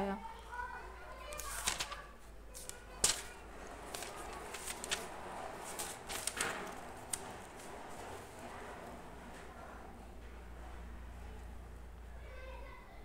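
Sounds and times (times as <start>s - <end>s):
book pages turning: 1.2s - 8.8s.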